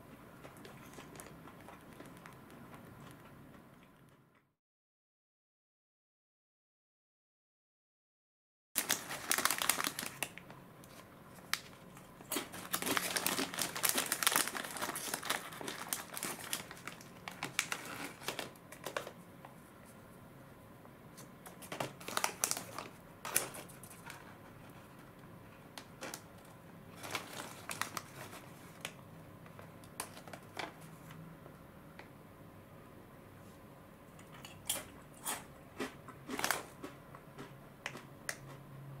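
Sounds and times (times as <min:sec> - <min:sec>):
foil snack bag crinkling: 0:08.8 - 0:19.2, 0:21.5 - 0:24.3, 0:25.9 - 0:29.0, 0:36.2 - 0:37.0.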